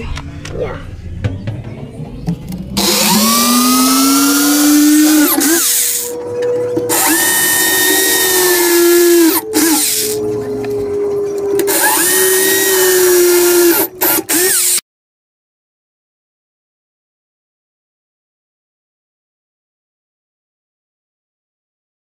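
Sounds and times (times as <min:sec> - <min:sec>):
drill bit hissing through metal: 0:02.8 - 0:06.1, 0:06.9 - 0:10.2, 0:11.7 - 0:14.8
electric drill motor whine: 0:02.8 - 0:14.8.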